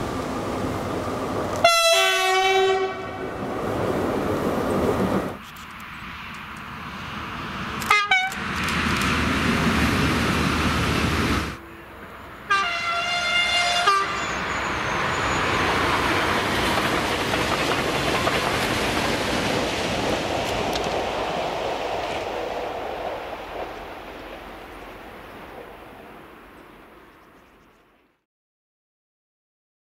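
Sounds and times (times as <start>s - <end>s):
train rumbling on rails: 0.0s - 27.4s
train horn blast: 1.6s - 3.4s, 7.8s - 8.4s, 12.5s - 14.4s
train horn toots: 1.6s - 3.4s, 7.8s - 8.4s, 12.5s - 14.7s.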